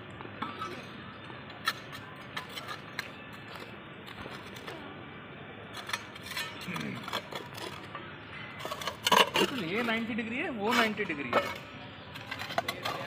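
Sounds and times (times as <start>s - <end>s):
trowel scraping soil: 1.6s - 4.7s, 5.8s - 7.9s, 8.6s - 10.1s, 10.7s - 13.0s.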